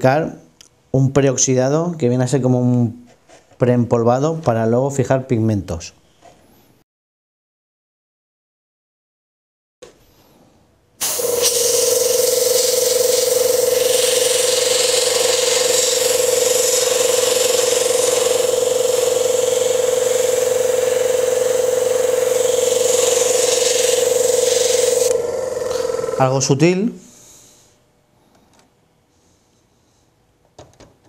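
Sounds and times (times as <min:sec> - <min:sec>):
airbrush spraying hiss: 0:11.0 - 0:26.2
compressor humming: 0:11.0 - 0:29.4.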